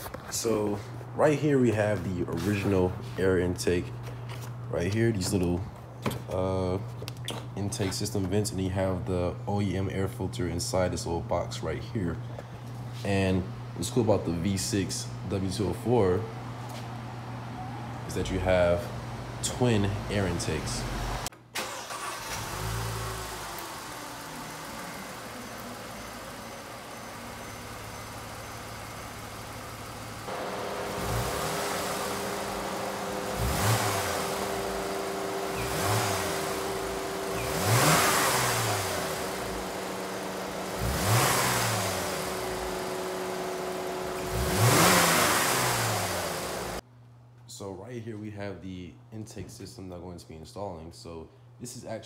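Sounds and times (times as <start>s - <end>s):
car engine idling: 15.2s - 46.8s
engine revving: 19.8s - 26.7s, 27.6s - 46.8s.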